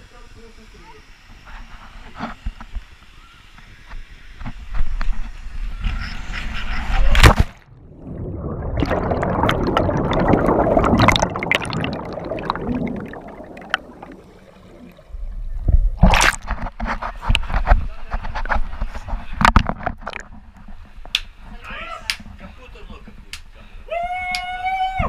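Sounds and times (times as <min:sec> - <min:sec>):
underwater bubbling and gurgling: 0:07.0 - 0:17.3, 0:19.4 - 0:20.9.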